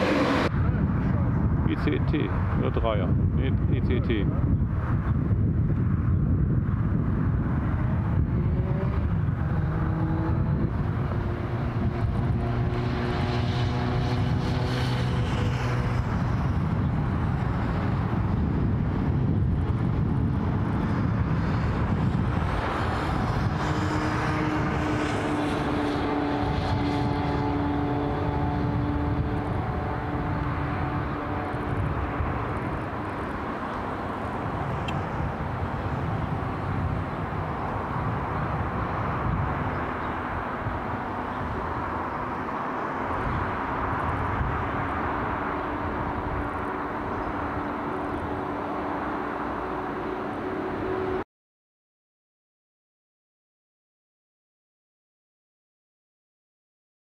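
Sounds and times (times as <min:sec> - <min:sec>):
high-speed electric train running: 0:06.0 - 0:51.2.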